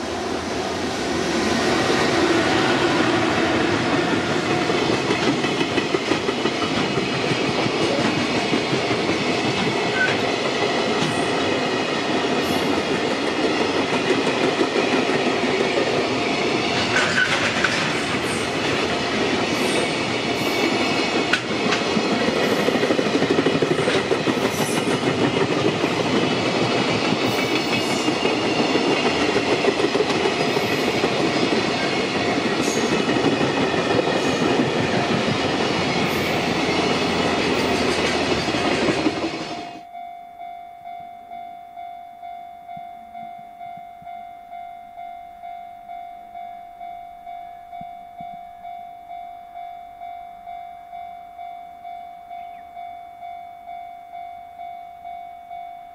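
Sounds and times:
train wheels rolling on rails: 0.0s - 39.8s.

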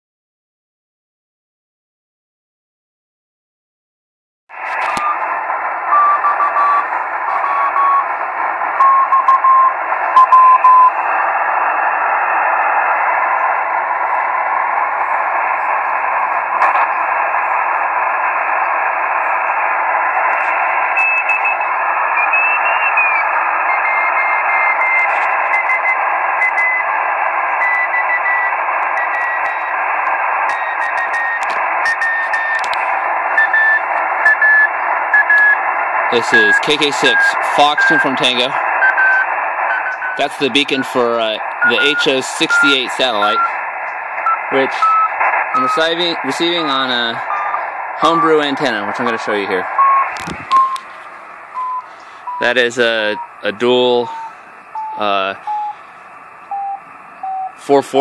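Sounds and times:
radio receiver hiss: 4.6s - 58.0s
faint morse tone: 51.6s - 55.9s.

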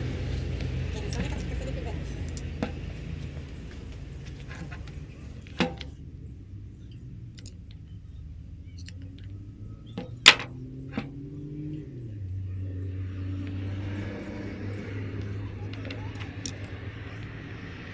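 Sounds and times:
steady low hum: 0.0s - 17.9s.

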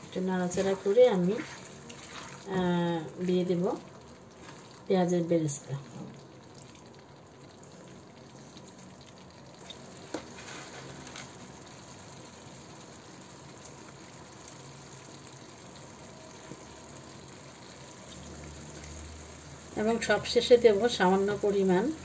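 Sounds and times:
gravy simmering and bubbling: 0.0s - 22.0s.

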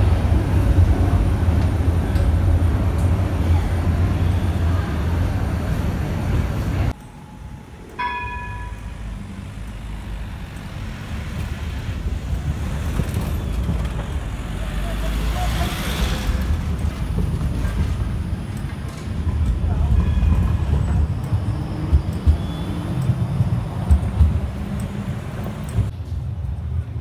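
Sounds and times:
street traffic: 0.0s - 27.0s
tram rumbling past: 0.0s - 27.0s
bell stroke: 6.9s - 9.3s.

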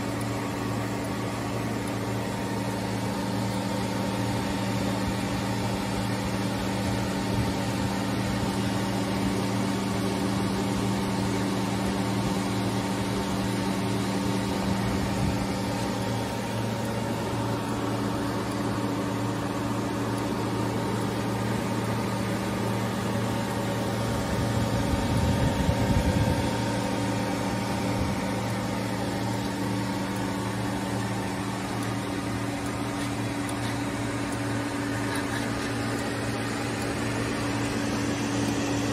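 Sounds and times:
electrical hum of machine cabinet: 0.0s - 38.9s.

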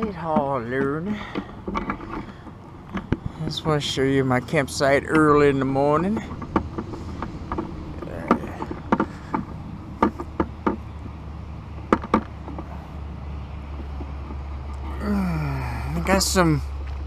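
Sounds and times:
distant engine humming: 0.0s - 17.0s.

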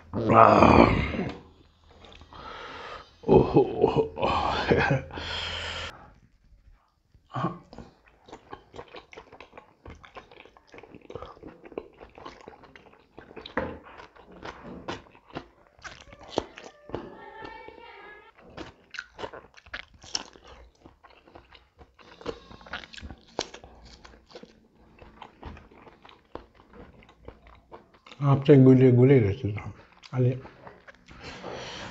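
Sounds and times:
wet chewing and lip-smacking: 7.7s - 17.6s, 18.3s - 28.2s, 29.7s - 31.2s.

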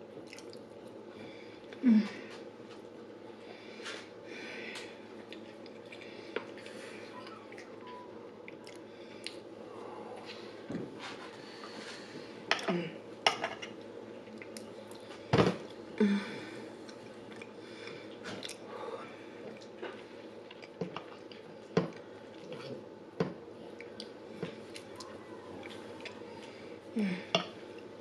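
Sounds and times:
wet chewing and mouth sounds: 0.2s - 0.9s, 5.2s - 7.8s, 8.4s - 9.5s, 16.8s - 18.7s, 19.4s - 22.8s, 23.7s - 26.5s.

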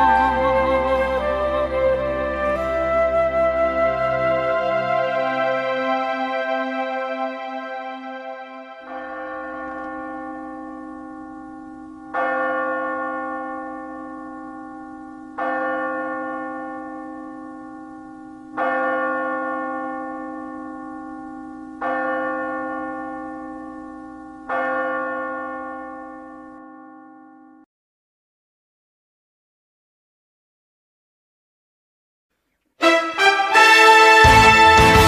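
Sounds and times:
bell-like chime: 0.0s - 1.9s, 5.0s - 27.7s
steady low drone: 0.0s - 9.0s.

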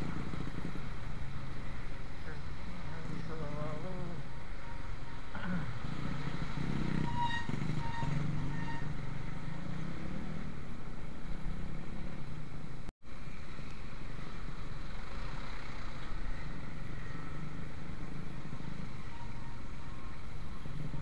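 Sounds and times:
motorcycle engine running: 0.0s - 4.2s.

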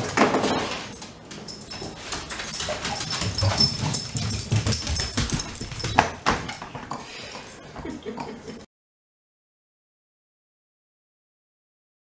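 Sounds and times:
dog moving close to microphone: 0.0s - 7.0s.

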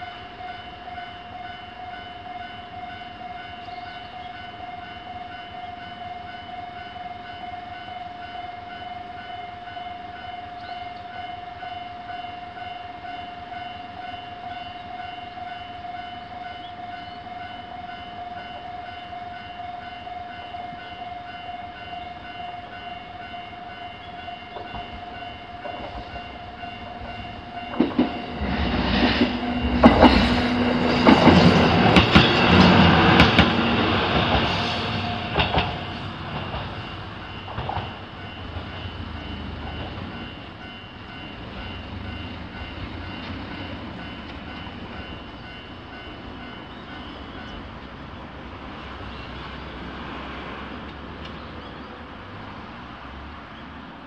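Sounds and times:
diesel railcar passing: 0.0s - 54.0s
wheels clacking over rail joints: 24.1s - 47.8s.

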